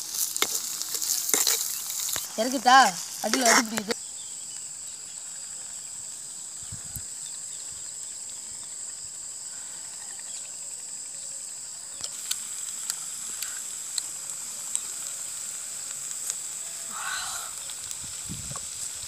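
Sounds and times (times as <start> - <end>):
high-pitched insect buzzing: 0.0 - 5.9, 11.7 - 19.0.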